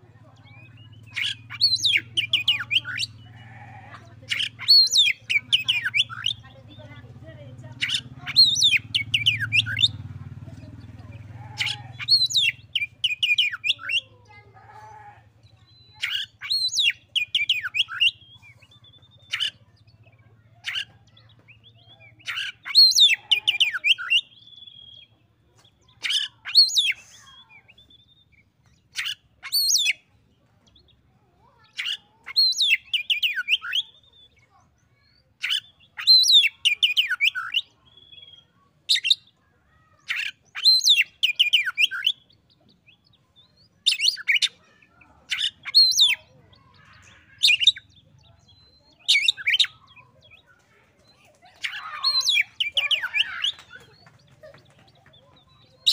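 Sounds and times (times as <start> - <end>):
bird singing whistled phrases: 12.0 - 14.0, 21.6 - 25.1, 32.4 - 39.3, 40.0 - 42.3, 43.4 - 44.6.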